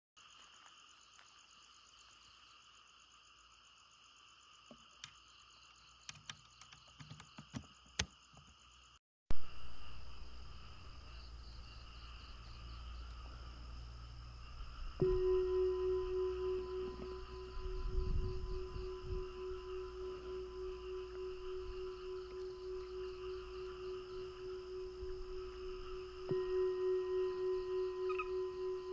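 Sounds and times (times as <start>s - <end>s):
insects and frogs trilling: 0.2s - 28.9s
low hum: 9.4s - 28.9s.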